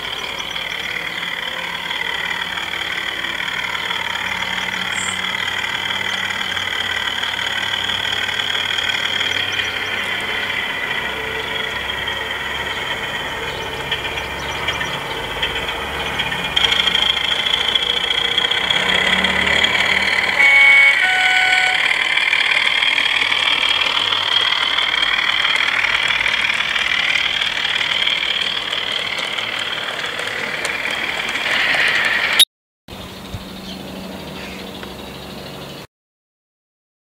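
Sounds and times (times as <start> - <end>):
train wheels on track: 0.0 - 33.7
model locomotive engine sound: 0.0 - 35.9
two-tone train horn: 1.0 - 24.3.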